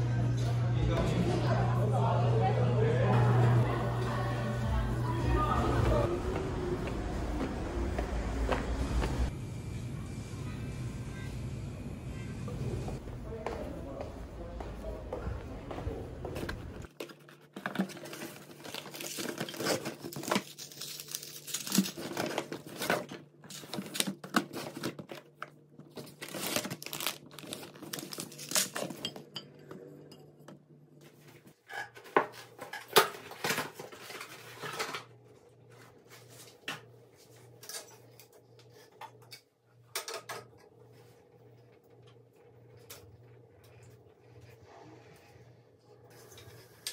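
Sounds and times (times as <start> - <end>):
plastic packaging rustling: 16.8 - 29.1.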